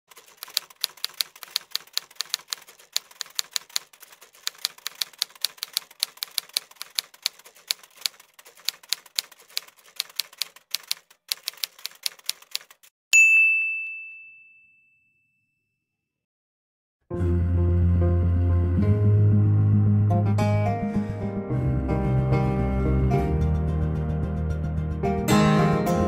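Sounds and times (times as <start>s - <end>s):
typewriter keys clacking: 0.1s - 12.9s.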